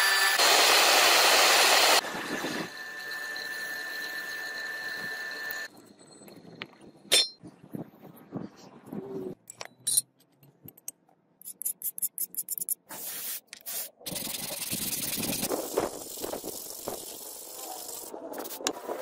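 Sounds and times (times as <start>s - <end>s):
sandpaper scraping steel blade: 11.4s - 18.7s.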